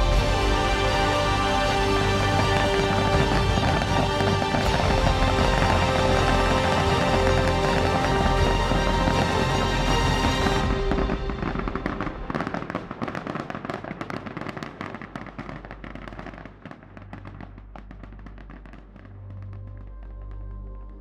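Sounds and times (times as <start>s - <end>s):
low musical drone: 0.0s - 13.7s, 17.0s - 21.0s
rapid crackling: 0.0s - 20.4s.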